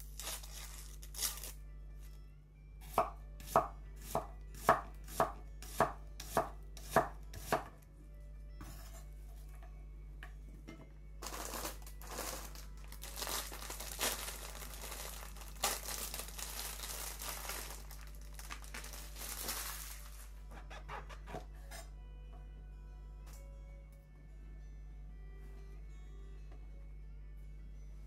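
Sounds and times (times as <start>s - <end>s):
plastic bag crinkling: 0.0s - 1.6s, 11.2s - 20.3s.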